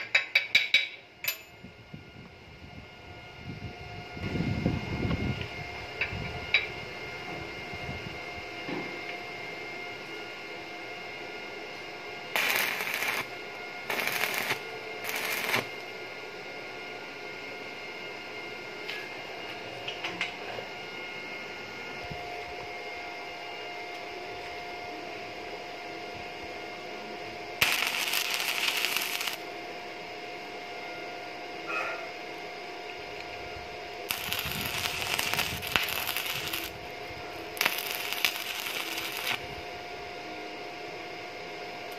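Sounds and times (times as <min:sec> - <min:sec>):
welding arc crackling: 0:12.3 - 0:15.8, 0:27.6 - 0:29.5, 0:34.1 - 0:36.9, 0:37.5 - 0:39.5
low hum: 0:12.4 - 0:16.2, 0:32.8 - 0:40.5.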